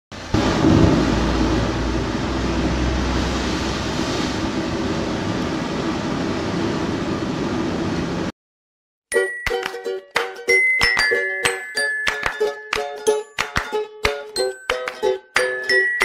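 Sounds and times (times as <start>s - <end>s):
low rumble: 0.3s - 8.3s.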